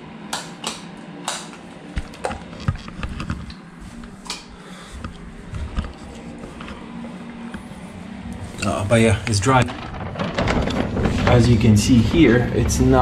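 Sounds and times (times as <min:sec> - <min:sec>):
low steady hum: 0:00.0 - 0:13.0
rustling: 0:05.3 - 0:13.0.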